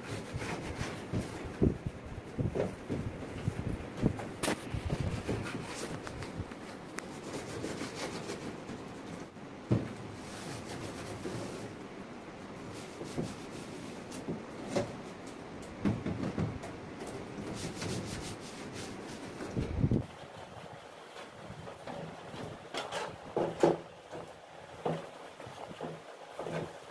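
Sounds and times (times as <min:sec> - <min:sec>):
cloth rubbing on plastic: 0:04.4 - 0:09.3, 0:17.5 - 0:19.6
knocks against plastic: 0:15.8 - 0:16.8.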